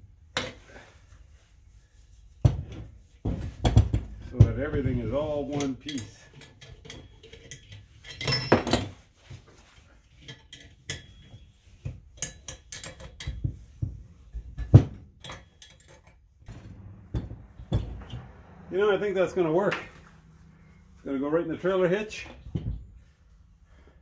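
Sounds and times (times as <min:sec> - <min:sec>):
tools and steel parts clinking: 0:05.4 - 0:18.2.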